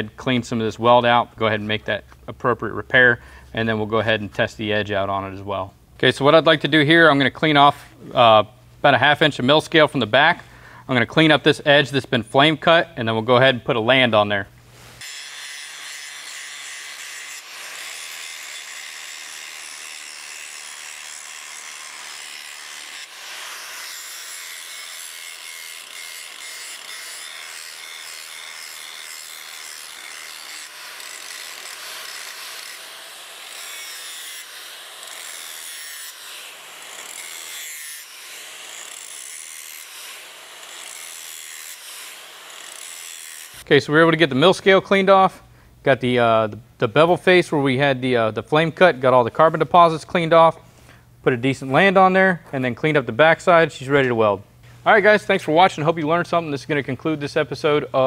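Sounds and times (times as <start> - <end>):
angle grinder grinding steel: 14.8 - 43.7.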